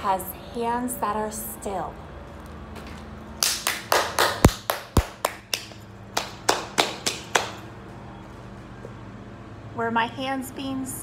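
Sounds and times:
hands clapping and slapping: 3.4s - 7.6s.

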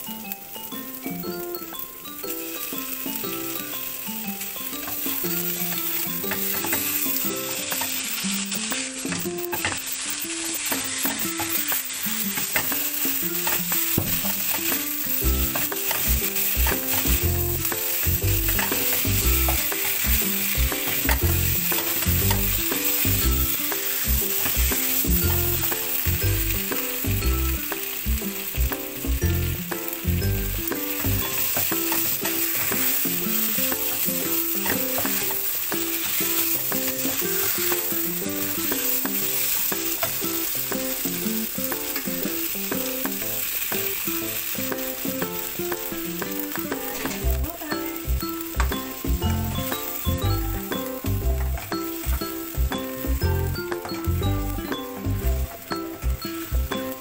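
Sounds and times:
chicken sizzling in a wok: 0.0s - 57.0s
spatula scraping a pan: 4.8s - 28.9s, 30.8s - 47.3s.

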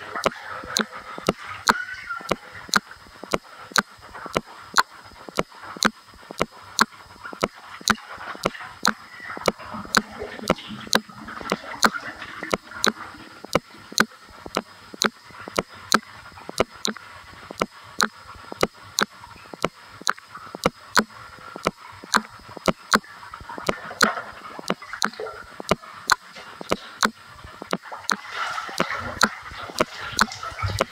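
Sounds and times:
sharp ticking: 0.2s - 30.9s
bathwater sloshing: 27.8s - 30.9s.

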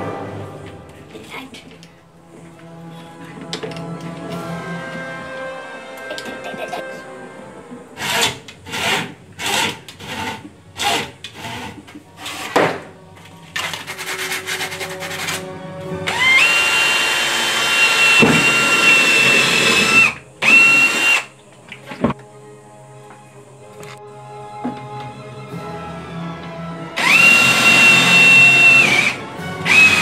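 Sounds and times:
cordless drill whining: 16.1s - 21.3s, 27.0s - 30.0s.

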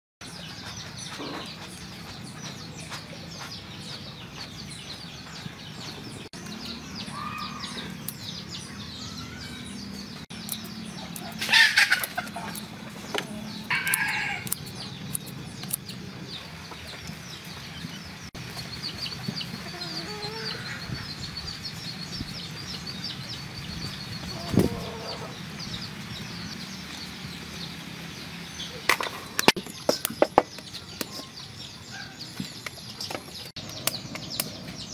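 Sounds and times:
chickens clucking: 0.6s - 6.3s, 11.0s - 15.3s, 18.6s - 21.1s, 24.1s - 25.5s
loud chicken calls: 11.4s - 12.6s, 13.7s - 14.5s, 24.3s - 25.4s.

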